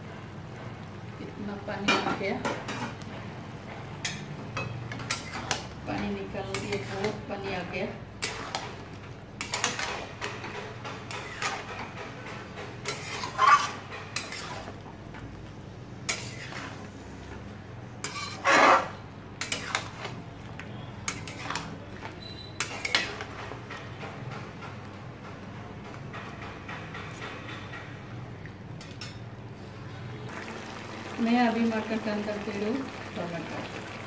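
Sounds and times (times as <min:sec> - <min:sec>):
spatula scraping and knocking pot: 0:01.9 - 0:07.4, 0:08.2 - 0:15.3, 0:16.0 - 0:16.9, 0:18.0 - 0:28.2.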